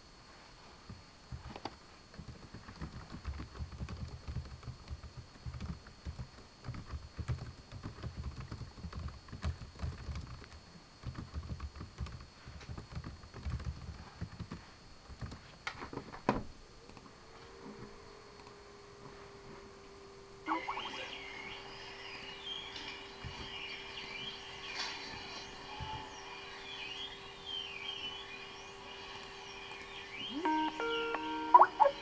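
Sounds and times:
typing on keyboard: 0:02.2 - 0:15.4.

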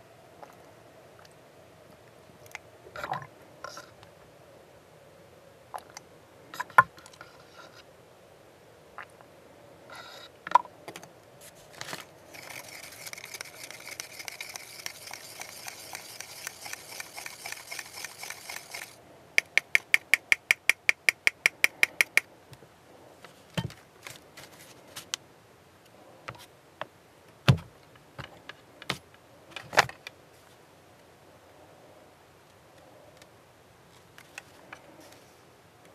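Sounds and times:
paint can mixing ball rattling: 0:12.3 - 0:19.0
sharp clacks: 0:13.1 - 0:22.3.

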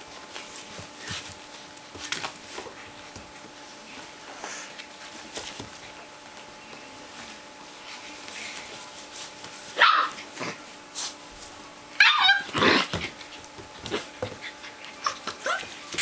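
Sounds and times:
puppies yipping and barking: 0:12.0 - 0:12.5.

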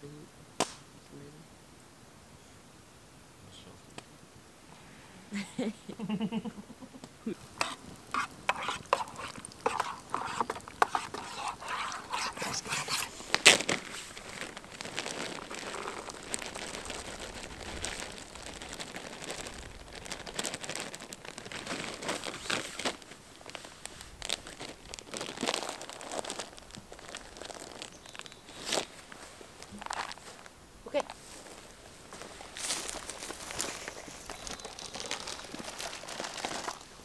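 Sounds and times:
food packet crinkling: 0:07.4 - 0:30.5, 0:31.4 - 0:37.0.

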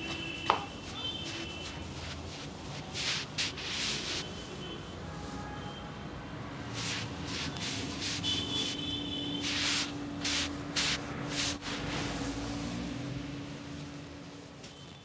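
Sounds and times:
hands rubbing over towel: 0:00.1 - 0:04.3, 0:06.8 - 0:08.8, 0:09.4 - 0:11.9.

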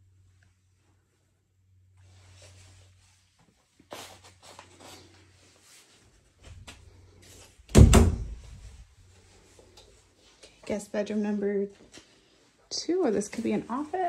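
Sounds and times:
door thumping open: 0:07.7 - 0:08.6.

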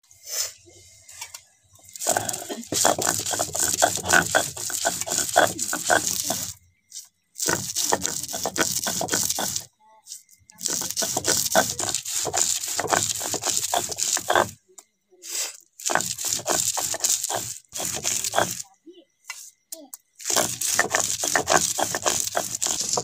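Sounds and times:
stone grinding wet grain: 0:01.9 - 0:14.6, 0:15.8 - 0:18.7, 0:20.2 - 0:23.0.

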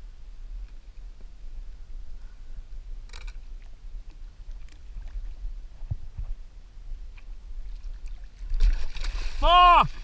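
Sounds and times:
water slapping kayak hull: 0:07.1 - 0:10.0.

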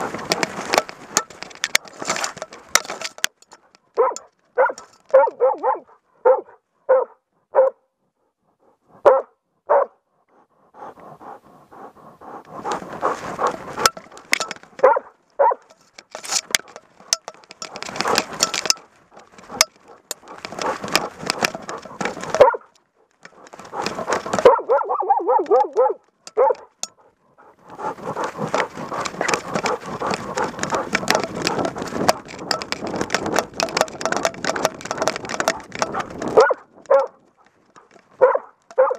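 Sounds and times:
dog barking: 0:04.0 - 0:07.9, 0:09.0 - 0:10.0, 0:14.8 - 0:15.7, 0:21.7 - 0:22.7, 0:23.8 - 0:27.2, 0:36.4 - 0:37.2, 0:38.2 - 0:38.9.

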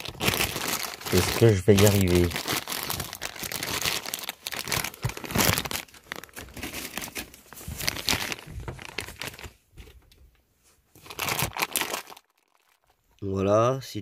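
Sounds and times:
plastic packaging crinkling: 0:00.0 - 0:10.0, 0:11.0 - 0:13.1.

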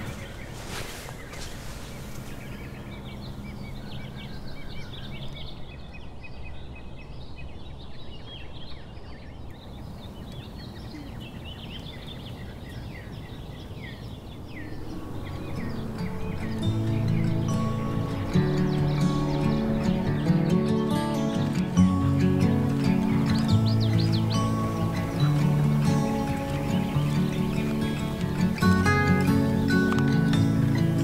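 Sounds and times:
small birds chirping: 0:00.0 - 0:31.0
low outdoor rumble: 0:09.6 - 0:31.0
music: 0:14.8 - 0:31.0.

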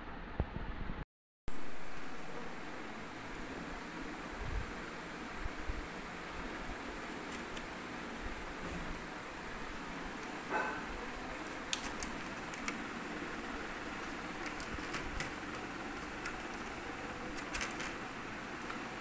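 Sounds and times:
plastic blister pack clicks: 0:11.6 - 0:12.8.

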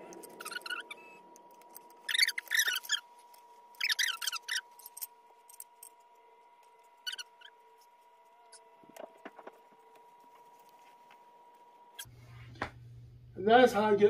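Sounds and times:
wheelchair squeaking: 0:02.1 - 0:03.0, 0:03.8 - 0:05.1.

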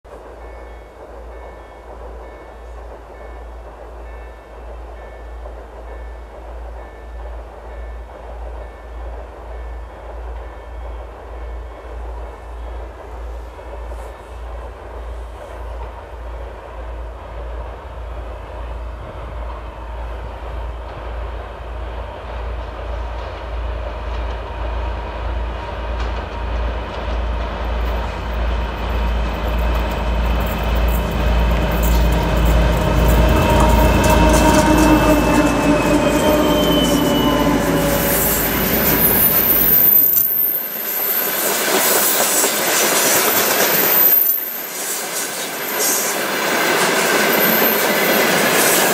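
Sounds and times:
rhythmic wheel clatter on rails: 0:00.1 - 0:48.9
diesel locomotive engines throbbing: 0:16.1 - 0:41.0
high wheel squeal: 0:30.3 - 0:48.9.

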